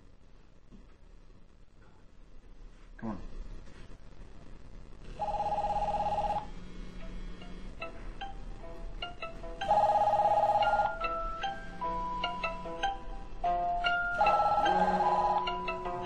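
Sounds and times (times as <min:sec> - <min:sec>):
melodic ringtone: 0:05.2 - 0:06.5, 0:07.4 - 0:16.0
two-tone phone ring: 0:05.2 - 0:06.5, 0:09.6 - 0:12.7, 0:13.9 - 0:16.0.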